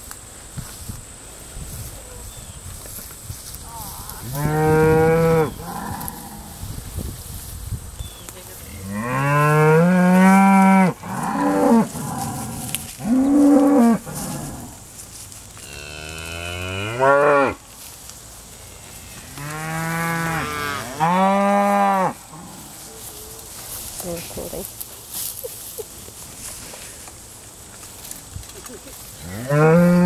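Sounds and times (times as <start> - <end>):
cows mooing: 4.2 - 6.6, 8.8 - 14.8, 15.6 - 17.6, 19.1 - 22.9, 29.2 - 30.0.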